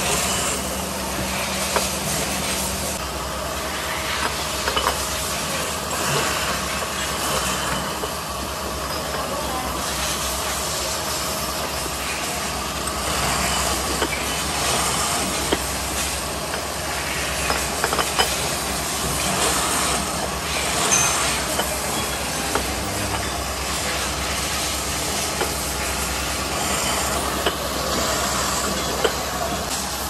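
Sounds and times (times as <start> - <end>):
drilling machine running: 0.0 - 30.0.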